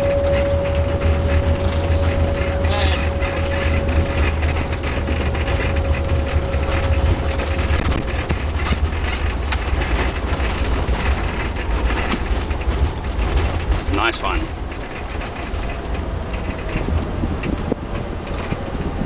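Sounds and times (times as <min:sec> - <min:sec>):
thin steady whine: 0:00.0 - 0:12.4
knocks and rattles: 0:00.0 - 0:19.0
rumble of wheels and engines: 0:00.0 - 0:19.0.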